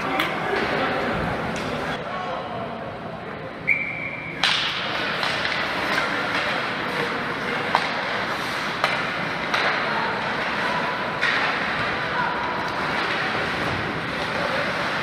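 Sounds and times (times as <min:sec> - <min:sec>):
steady background noise: 0:00.0 - 0:15.0
short high whistle: 0:03.7 - 0:04.4.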